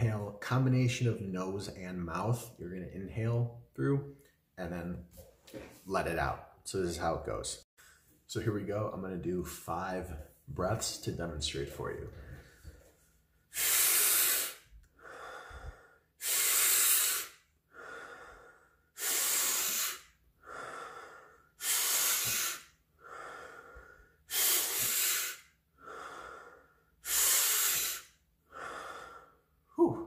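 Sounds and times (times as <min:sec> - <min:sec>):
man breathing in and out: 0:07.8 - 0:08.3, 0:12.1 - 0:30.0.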